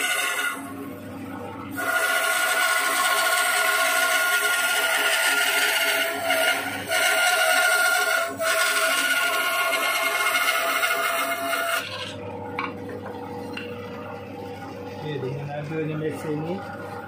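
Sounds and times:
band saw cutting wood: 0.0 - 0.7, 1.7 - 12.2.

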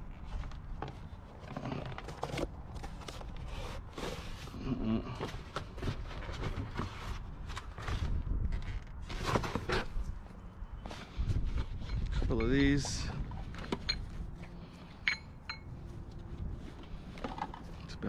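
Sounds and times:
cardboard box rustling and scraping: 0.2 - 4.6, 5.2 - 10.2.

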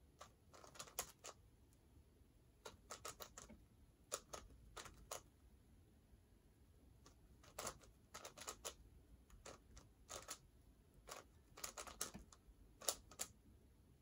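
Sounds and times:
plastic puzzle cube clicking: 0.2 - 1.4, 2.6 - 5.3, 7.4 - 8.8, 9.4 - 10.4, 11.1 - 13.3.

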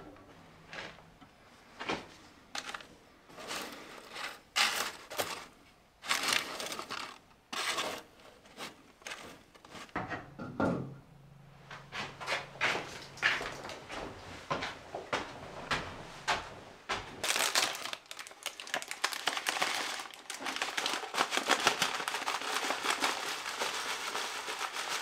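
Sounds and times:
baking paper crinkling: 2.6 - 10.0, 17.2 - 25.0
metal tray scraping: 2.6 - 10.2
knocks: 10.0 - 11.0.

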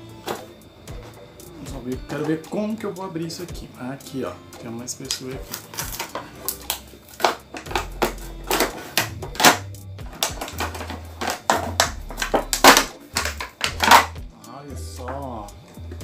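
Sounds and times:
background music bass notes: 0.0 - 16.0
box being pried open: 5.5 - 9.6, 10.2 - 14.2.

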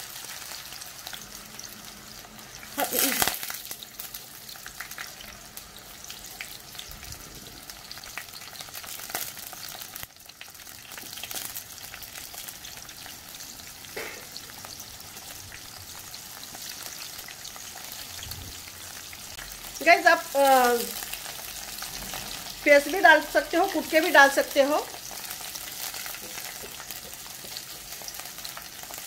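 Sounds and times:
hot oil sizzling: 0.0 - 29.0
small crackles in oil: 2.6 - 5.4.

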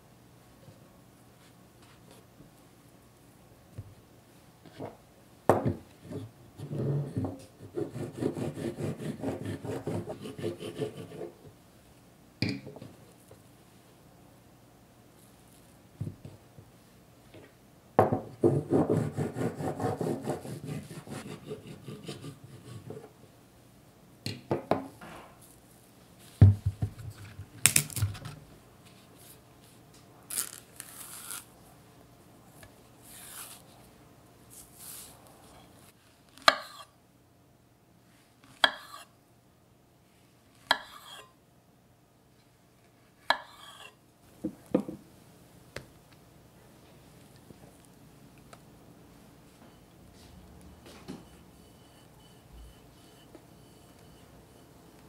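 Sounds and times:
knocks on wooden board: 26.4 - 27.0
banana being peeled: 30.3 - 31.5, 33.0 - 33.7
cake scraping on wooden board: 43.4 - 43.9.

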